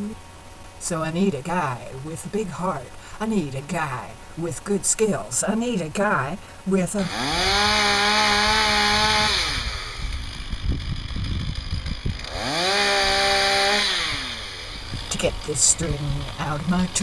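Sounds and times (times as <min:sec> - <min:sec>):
chainsaw revving and idling: 0:07.0 - 0:17.0.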